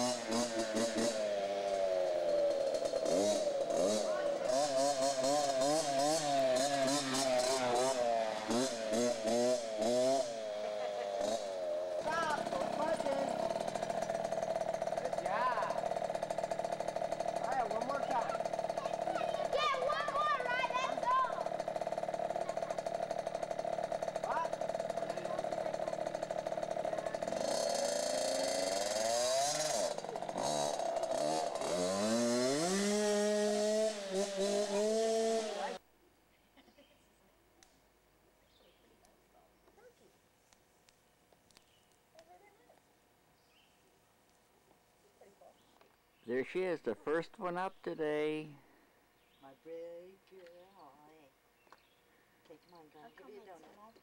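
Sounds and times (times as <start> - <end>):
dirt bike engine buzzing: 0.0 - 35.8.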